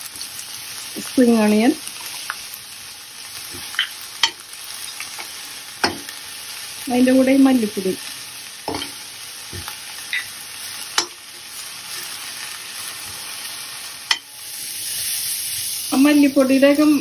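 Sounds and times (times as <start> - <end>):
vegetables sizzling in oil: 0.0 - 17.0
spoon clicking against pan: 3.7 - 4.4, 10.9 - 11.2, 14.1 - 14.3.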